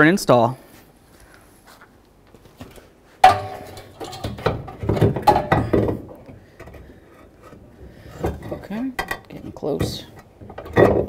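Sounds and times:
metal knocking and clattering: 3.2 - 11.0.

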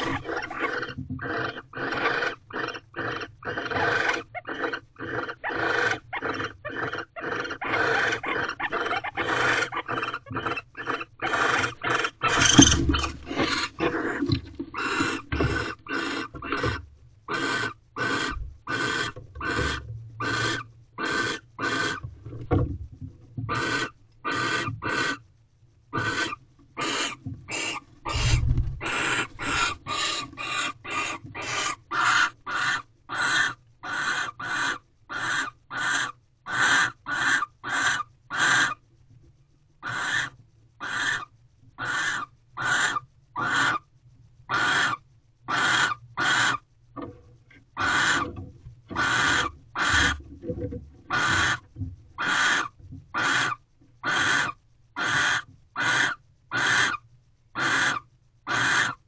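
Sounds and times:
owl rasping hisses: 0.0 - 22.0, 23.5 - 25.2, 26.0 - 38.8, 39.8 - 43.8, 44.5 - 46.6, 47.8 - 48.2, 52.2 - 57.0, 57.6 - 59.0.

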